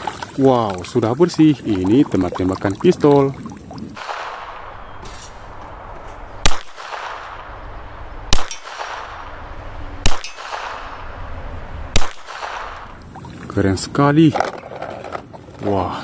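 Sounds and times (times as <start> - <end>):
metallic clang of steel target: 4.0 - 7.7, 8.3 - 11.3
handgun shots: 4.0 - 13.0.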